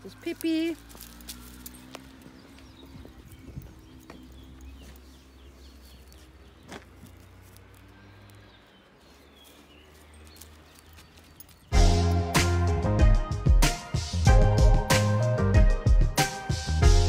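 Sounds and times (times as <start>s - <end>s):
small birds chirping: 0.0s - 12.1s.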